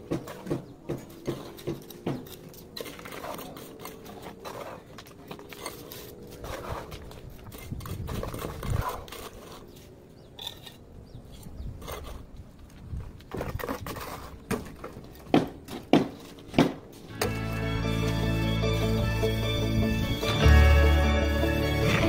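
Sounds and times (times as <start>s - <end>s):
trowel tapping bricks: 0.0s - 9.5s.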